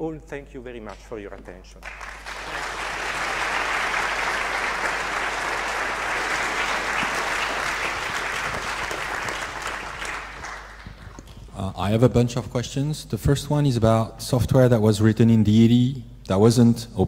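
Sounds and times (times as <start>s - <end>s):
audience applauding: 1.8s - 11.4s.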